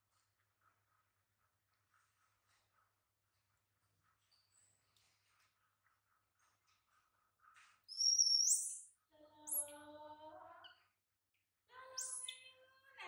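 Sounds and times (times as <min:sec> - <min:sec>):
baby monkey squealing: 0:07.9 - 0:08.8.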